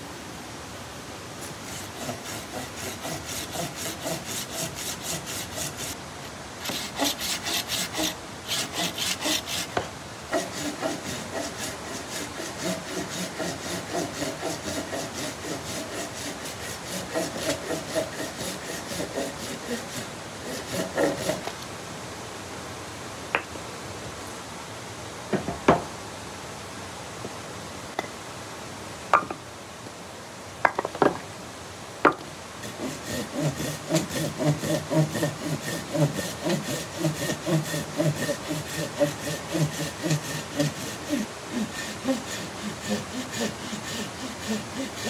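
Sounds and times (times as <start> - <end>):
hand saw cutting through log: 1.4 - 21.6, 32.6 - 45.0.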